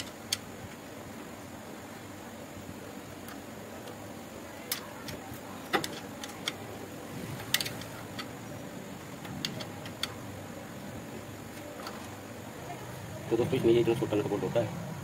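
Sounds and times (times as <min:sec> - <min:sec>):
spanner clicking on metal nut: 0:04.7 - 0:06.6, 0:09.2 - 0:10.2.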